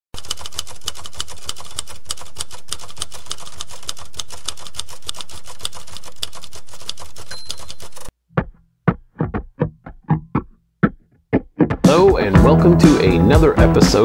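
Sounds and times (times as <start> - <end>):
typewriter key clacks: 0.2 - 8.1.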